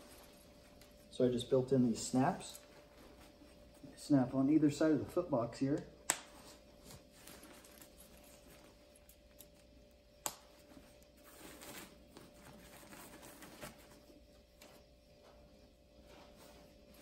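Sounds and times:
nylon fabric rustling: 0.0s - 4.0s, 6.3s - 9.2s.

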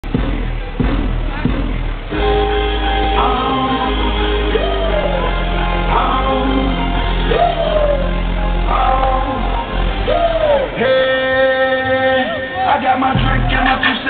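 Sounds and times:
heavy steady bass: 0.0s - 14.0s
person singing: 2.2s - 14.0s.

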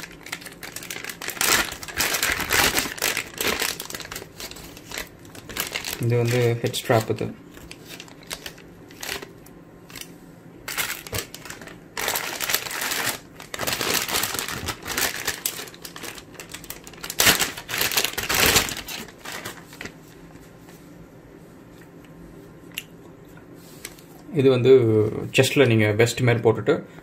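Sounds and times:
plastic bag crinkling: 0.0s - 10.1s, 10.7s - 20.4s.

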